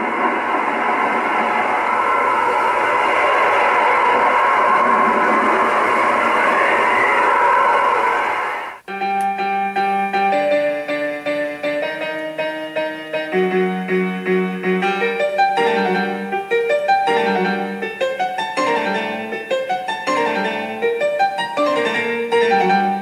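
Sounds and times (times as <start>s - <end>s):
piano music: 8.9s - 23.0s.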